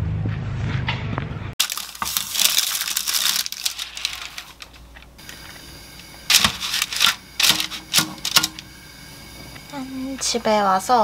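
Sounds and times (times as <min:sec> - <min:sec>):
parchment paper crinkling: 0:01.6 - 0:05.5, 0:06.3 - 0:08.6.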